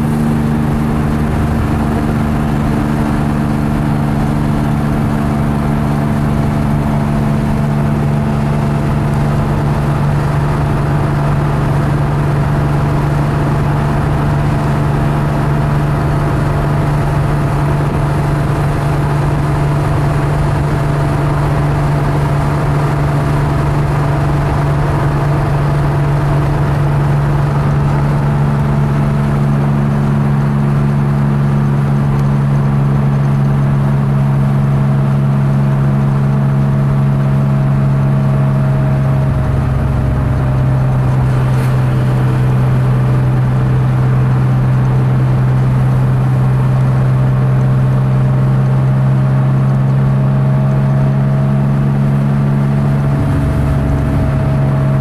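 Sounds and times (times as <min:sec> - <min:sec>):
car engine droning from inside: 0:00.0 - 0:55.0.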